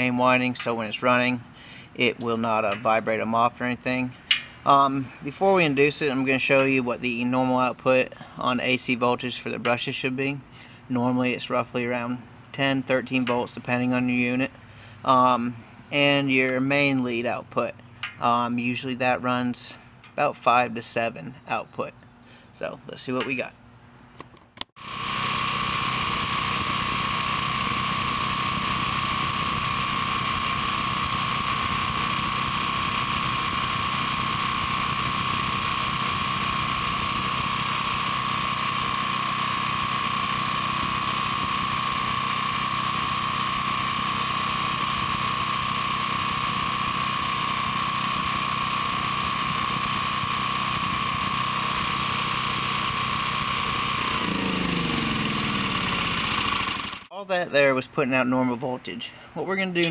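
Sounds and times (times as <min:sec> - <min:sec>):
generator engine running: 0:00.0 - 0:21.4, 0:24.8 - 0:57.1
steady high whine: 0:00.0 - 0:22.0, 0:24.8 - 0:57.3.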